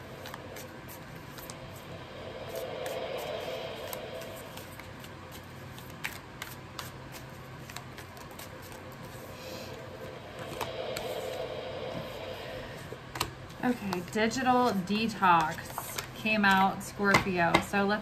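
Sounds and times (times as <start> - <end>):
cards being shuffled: 5.3 - 9.2.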